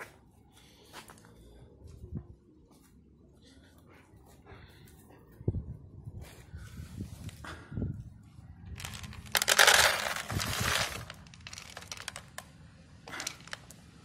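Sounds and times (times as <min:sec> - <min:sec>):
kibble rattling into plastic bowl: 0:08.8 - 0:12.4, 0:13.1 - 0:13.7.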